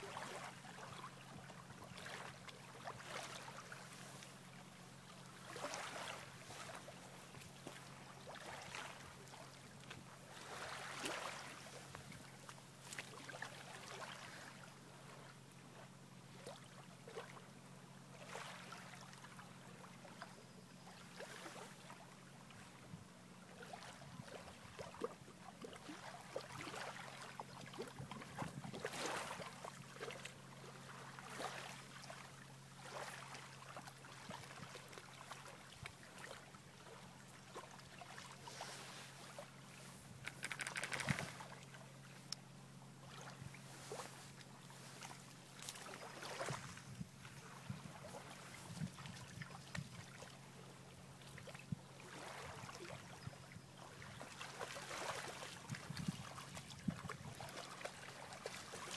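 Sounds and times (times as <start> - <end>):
steady low hum: 0.0 - 58.9
dog splashing in shallow water: 53.8 - 58.9.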